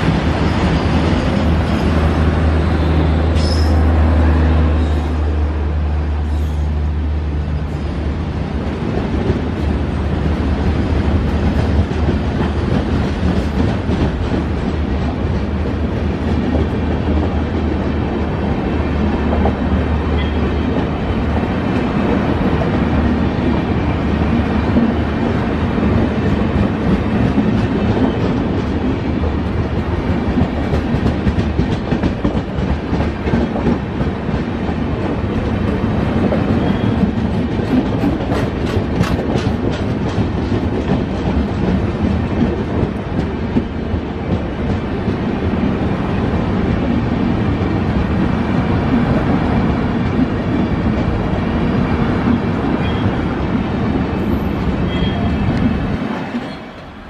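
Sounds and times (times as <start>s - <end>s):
train wheels rumbling on rails: 0.0s - 57.0s
clatter over rail joints: 29.7s - 45.2s.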